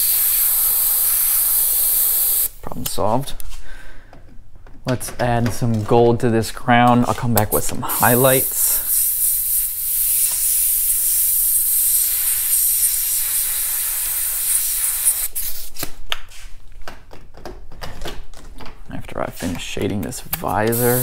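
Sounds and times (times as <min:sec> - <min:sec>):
airbrush hissing: 0:00.0 - 0:02.5, 0:07.8 - 0:15.6, 0:20.7 - 0:21.0.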